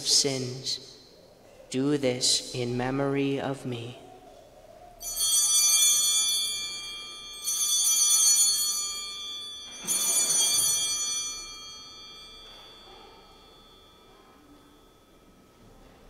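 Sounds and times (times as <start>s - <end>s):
altar bells ringing: 5.0s - 16.0s.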